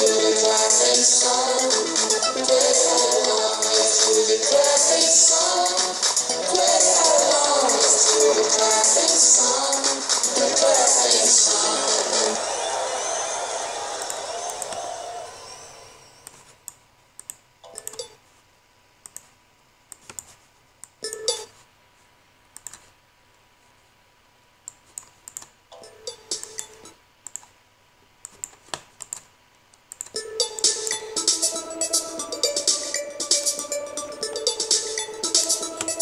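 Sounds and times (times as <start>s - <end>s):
children's music from speakers: 0.0s - 15.9s, 30.2s - 36.0s
keyboard typing and clicking: 16.2s - 18.2s, 19.0s - 19.3s, 19.9s - 21.6s, 22.6s - 22.9s, 24.6s - 27.5s, 28.2s - 36.0s.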